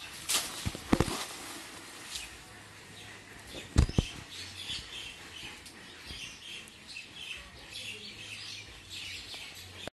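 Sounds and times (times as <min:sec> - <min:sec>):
small birds chirping: 0:02.0 - 0:09.9.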